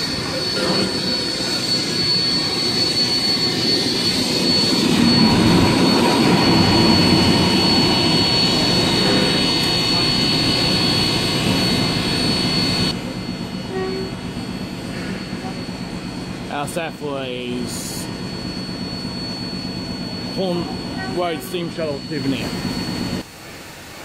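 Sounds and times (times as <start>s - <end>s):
high thin whine: 0.0s - 23.2s.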